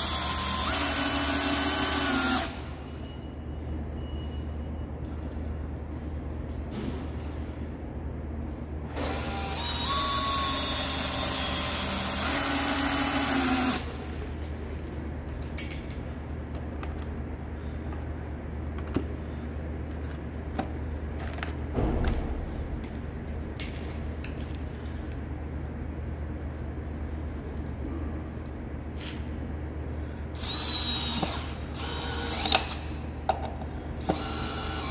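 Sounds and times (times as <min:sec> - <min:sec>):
cordless drill driving screw: 0:00.0 - 0:02.6, 0:34.0 - 0:34.9.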